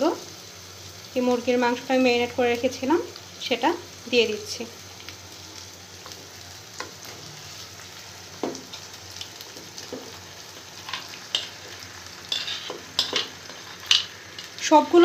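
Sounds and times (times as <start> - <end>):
chicken sizzling in oil: 0.0 - 15.0
metal spoon scraping and knocking: 12.3 - 14.1.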